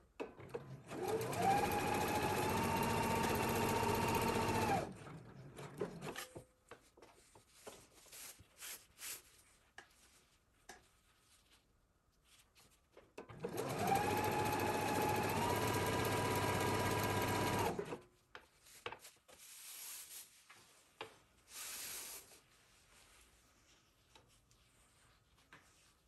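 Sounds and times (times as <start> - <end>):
electric sewing machine stitching: 0.3 - 6.2, 13.3 - 18.0.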